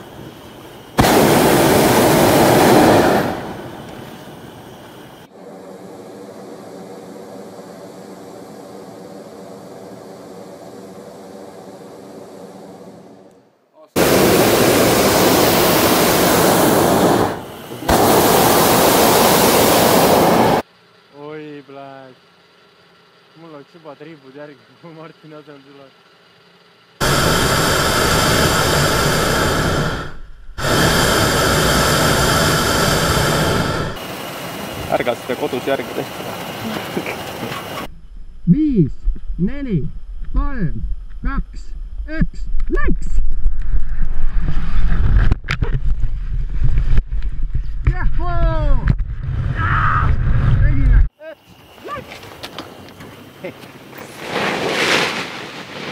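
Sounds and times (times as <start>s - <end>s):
propane burner roaring: 0.0s - 13.4s, 14.0s - 21.2s, 26.0s - 38.4s.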